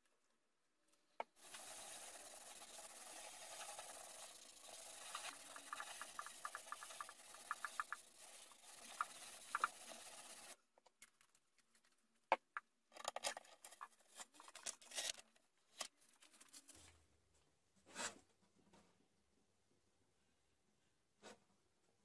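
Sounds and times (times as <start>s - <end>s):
hands rubbing paper: 1.4s - 10.6s
steady hiss: 1.4s - 10.6s
paper rustling and clicks: 13.0s - 16.8s.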